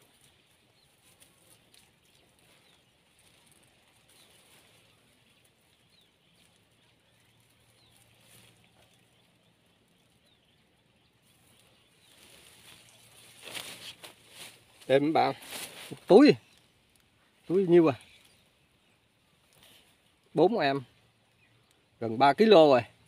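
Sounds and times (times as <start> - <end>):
faint bird chirps: 0.0 - 23.0
plastic bag rustling: 12.0 - 16.1.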